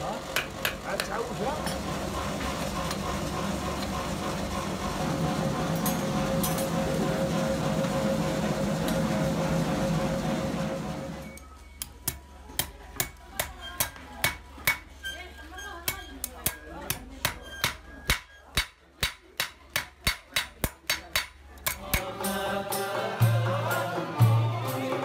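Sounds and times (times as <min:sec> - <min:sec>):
hammer striking iron on anvil: 0:00.3 - 0:01.8, 0:12.0 - 0:15.0, 0:15.8 - 0:22.3
deep drum beat: 0:21.7 - 0:25.0
folk music: 0:21.8 - 0:25.0.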